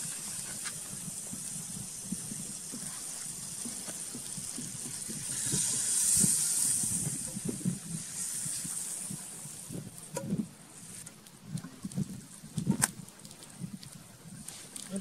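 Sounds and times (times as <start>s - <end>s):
wood fire crackling: 0.0s - 15.0s
liquid sizzling in hot pot: 2.0s - 9.7s.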